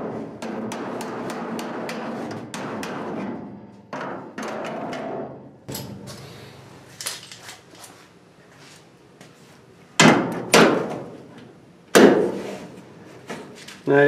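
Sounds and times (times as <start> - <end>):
hammer striking sheet metal: 0.0 - 7.2.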